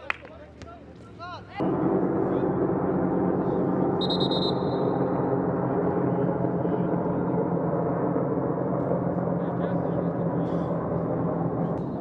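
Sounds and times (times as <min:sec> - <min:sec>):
loud background noise: 0:00.4 - 0:12.0
referee's whistle blast: 0:04.0 - 0:04.8.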